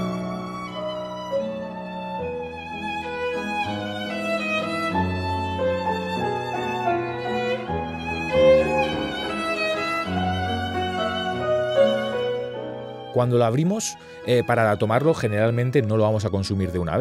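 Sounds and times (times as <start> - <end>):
bowed string melody: 0.0 - 17.0.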